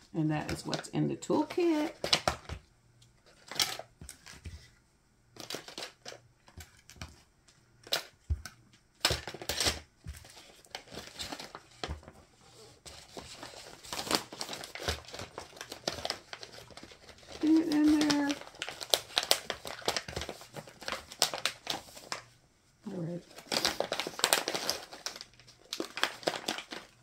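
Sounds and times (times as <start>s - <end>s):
plastic packets rustling: 5.4s - 7.2s, 9.0s - 27.0s.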